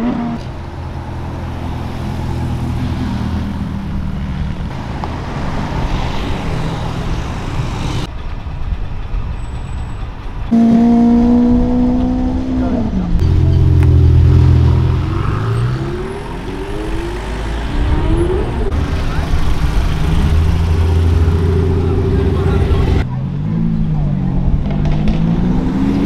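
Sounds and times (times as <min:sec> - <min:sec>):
car engines rumbling at low revs: 0:10.0 - 0:26.0.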